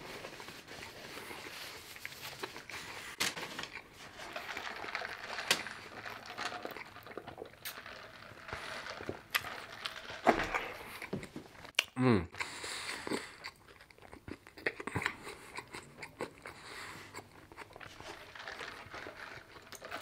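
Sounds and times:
person chewing: 0.8 - 20.0
mouth clicks and smacks: 11.7 - 12.5.

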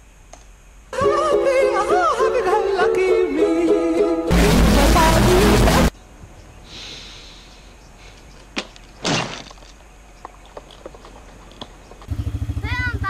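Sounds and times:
person falling onto grass: 8.5 - 9.8.

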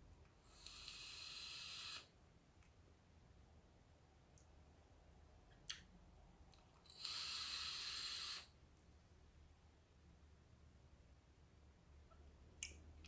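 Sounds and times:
airy vapour hiss: 0.4 - 2.2, 6.8 - 8.6.

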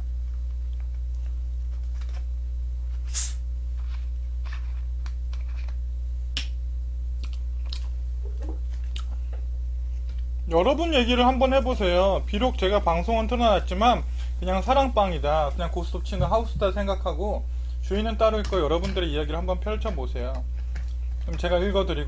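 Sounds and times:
low steady hum: 0.0 - 22.0
short hiss: 3.1 - 3.4.

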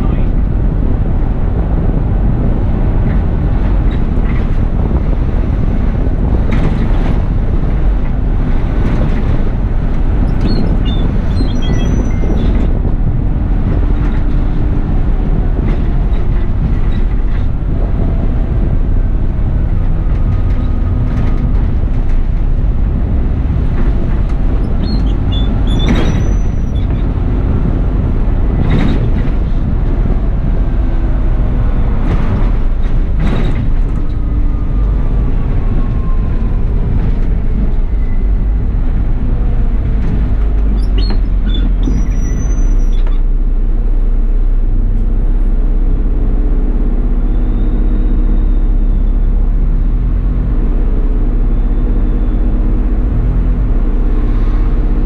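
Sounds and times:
bus engine and road rumble: 0.0 - 55.0
sharp knocks and rattles: 19.5 - 34.5.

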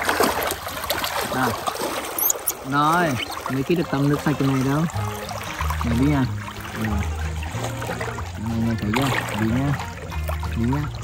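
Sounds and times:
river water flowing and lapping: 0.0 - 11.0
background music: 3.0 - 11.0.

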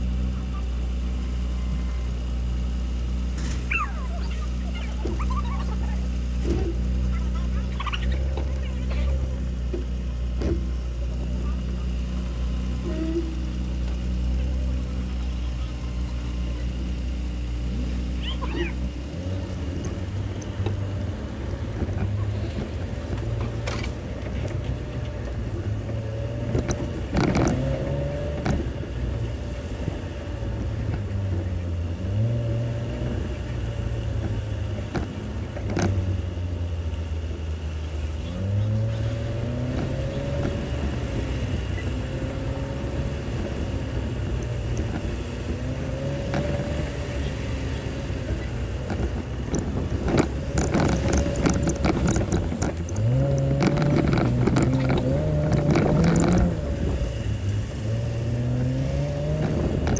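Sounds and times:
car engine running at low speed: 0.0 - 59.9
sharp knocks and rattles: 48.3 - 56.6.

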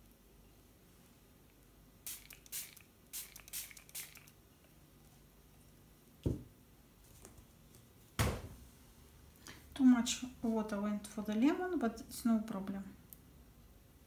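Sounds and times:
spray bottle squirts: 2.0 - 4.4.

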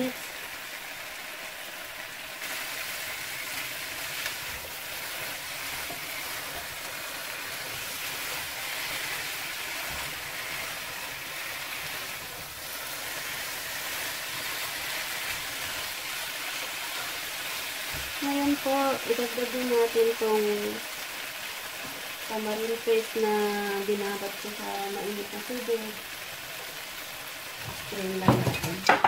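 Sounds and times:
chicken sizzling in a frying pan: 0.0 - 29.0
spatula stirring in a pan: 2.3 - 18.2.

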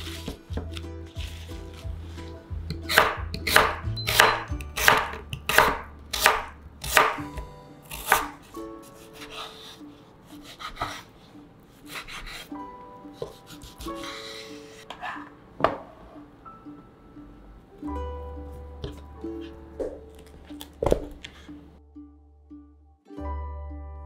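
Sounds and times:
knife slicing on cutting board: 10.4 - 11.1, 11.9 - 12.5, 13.2 - 15.3.

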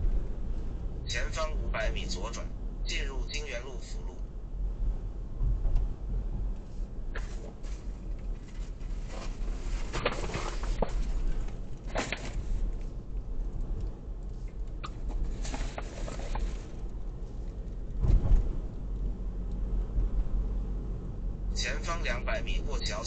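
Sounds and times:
road and engine rumble: 0.0 - 23.0
thud over a bump: 18.0 - 18.7.

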